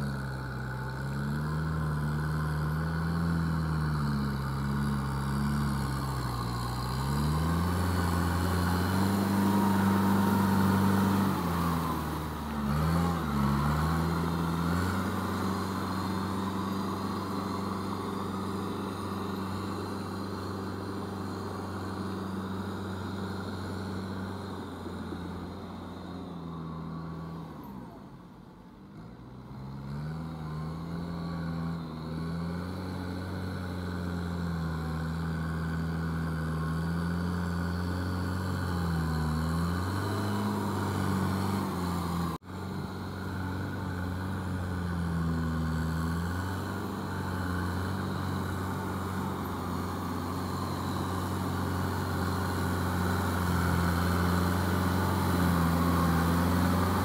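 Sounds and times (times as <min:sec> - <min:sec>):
tractor diesel engine under load: 0:00.0 - 0:57.0.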